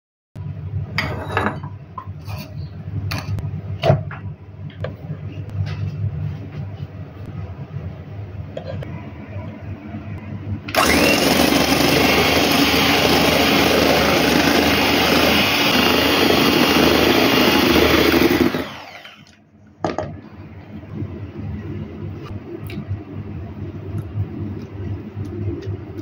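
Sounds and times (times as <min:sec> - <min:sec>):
electric hand mixer whipping: 0:10.7 - 0:19.3.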